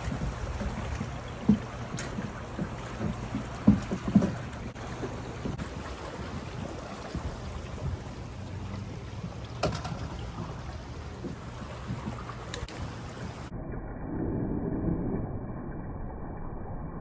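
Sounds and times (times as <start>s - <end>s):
floodwater rushing: 0.0s - 13.5s
low rumble: 0.0s - 17.0s.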